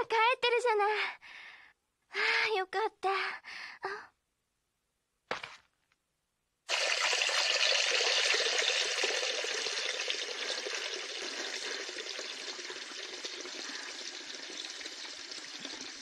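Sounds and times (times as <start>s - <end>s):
tap water gushing into basin: 6.7s - 16.0s.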